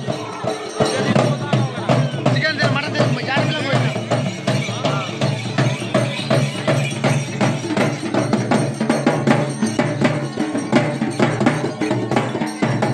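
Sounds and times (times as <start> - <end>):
barrel drums beaten with sticks: 0.0 - 12.9
other percussion: 0.0 - 12.9.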